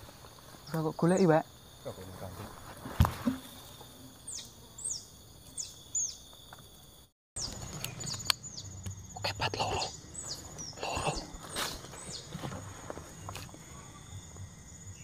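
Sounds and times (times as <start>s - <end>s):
high-pitched insect drone: 7.6s - 11.9s.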